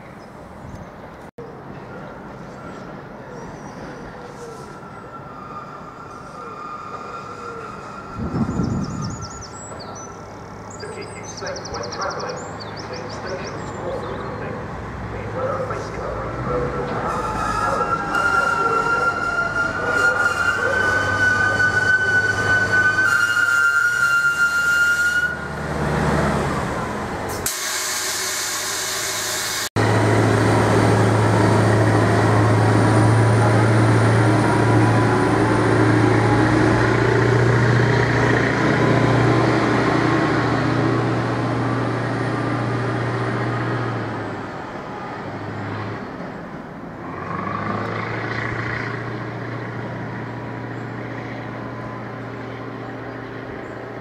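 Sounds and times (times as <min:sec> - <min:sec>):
diesel engine running: 0:29.8 - 0:45.7.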